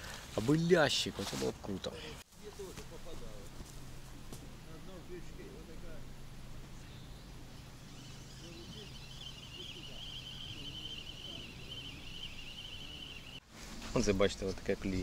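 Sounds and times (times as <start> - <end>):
low steady hum: 2.4 - 13.4
high-pitched wavering trill: 5.7 - 13.4.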